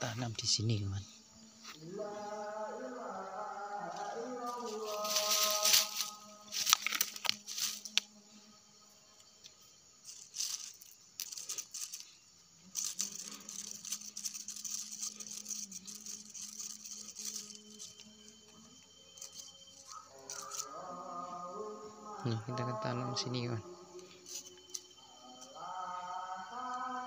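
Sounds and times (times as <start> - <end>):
soil scraping and rustling: 3.9 - 8.1, 10.0 - 20.9.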